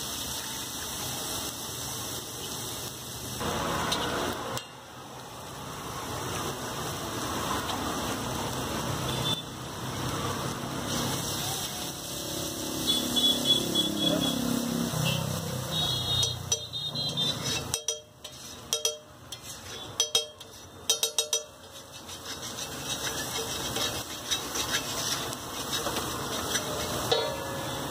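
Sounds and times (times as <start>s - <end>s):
food sizzling on griddle: 0.0s - 27.9s
street traffic: 0.0s - 27.9s
spatula clacking on griddle: 16.1s - 27.5s
spatula scraping: 16.1s - 27.8s.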